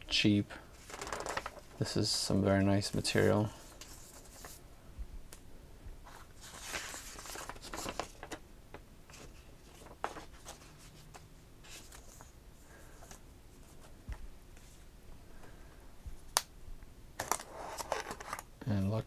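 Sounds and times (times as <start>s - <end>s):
paper leaflet rustling: 0.7s - 4.6s, 6.1s - 14.8s.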